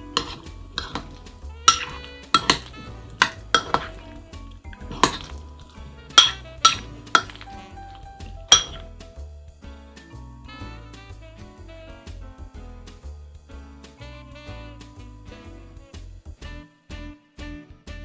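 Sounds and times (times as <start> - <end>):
soft background music: 0.0 - 18.0
metal spoon clinking ceramic bowl: 0.2 - 8.8.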